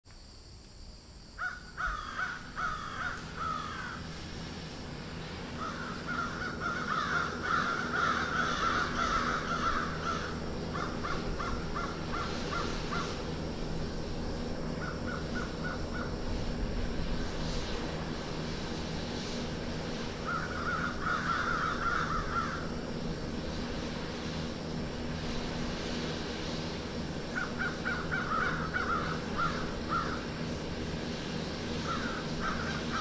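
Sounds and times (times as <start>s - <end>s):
steady low hum: 0.1s - 33.0s
birds giving harsh calls: 1.4s - 4.1s, 5.5s - 13.4s, 14.7s - 16.2s, 20.2s - 22.7s, 27.3s - 30.4s, 31.8s - 33.0s.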